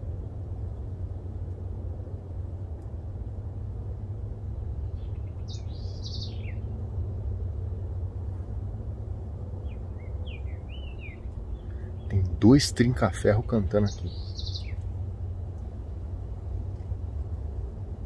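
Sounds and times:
steady low rumble: 0:00.0 - 0:18.0
bird whistling song: 0:05.0 - 0:06.7, 0:09.6 - 0:12.1, 0:13.9 - 0:14.8.

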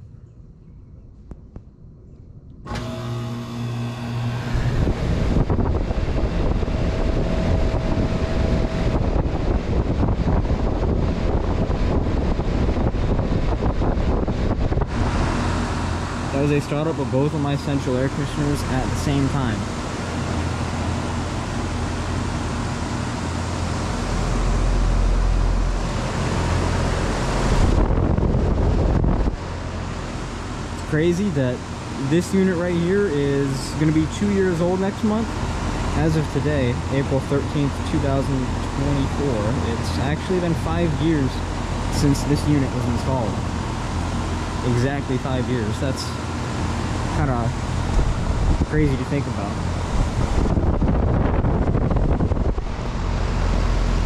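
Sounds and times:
air conditioner humming: 0:00.0 - 0:54.0
rush of fan air: 0:02.6 - 0:54.0
deep rumble: 0:04.5 - 0:31.1, 0:46.7 - 0:54.0.

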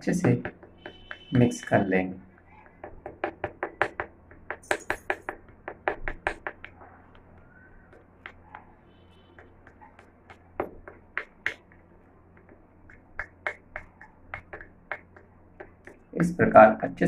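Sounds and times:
metal spoon tapping glass bowl: 0:02.7 - 0:06.7.

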